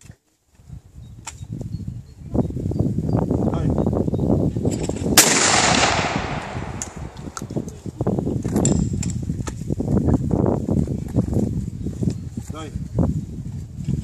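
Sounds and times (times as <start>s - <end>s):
shotgun shot echoing: 5.2s - 7.4s.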